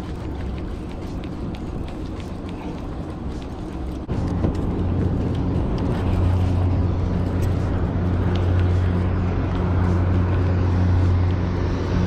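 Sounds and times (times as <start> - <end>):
clicking and rattling of gear: 0.0 - 9.6.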